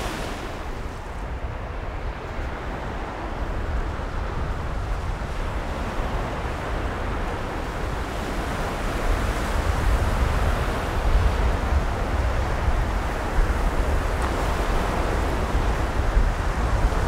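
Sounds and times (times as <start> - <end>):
surf washing onto beach: 0.0 - 17.0
wind buffeting microphone: 0.0 - 17.0.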